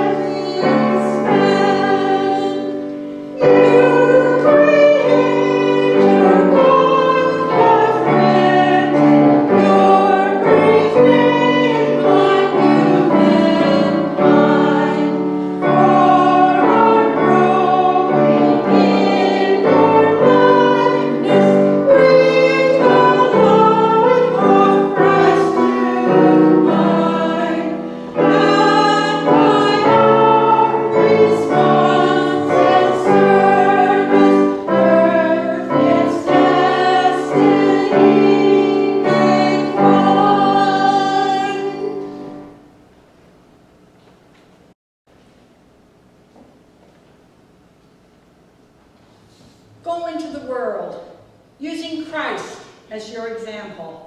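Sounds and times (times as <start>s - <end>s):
choir singing a hymn: 0.0s - 42.6s
instrumental accompaniment: 0.0s - 42.6s.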